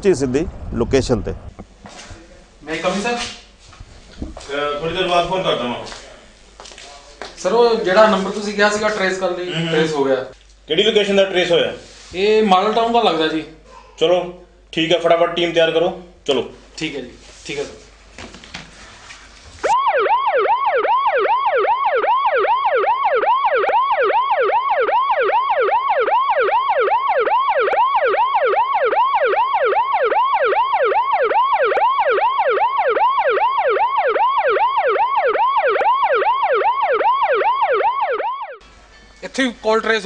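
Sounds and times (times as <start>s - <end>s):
police siren yelping: 19.6s - 38.6s.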